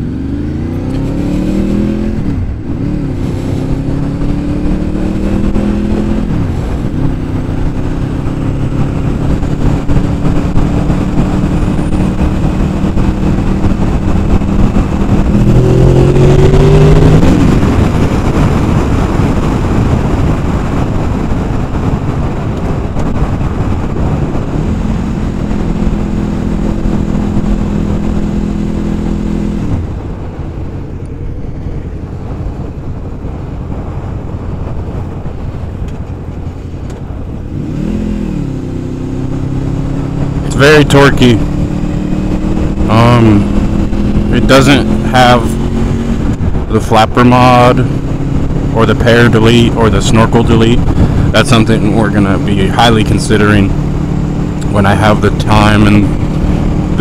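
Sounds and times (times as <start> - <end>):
motorcycle engine revving: 0.0 - 57.0
wind rushing: 0.0 - 57.0.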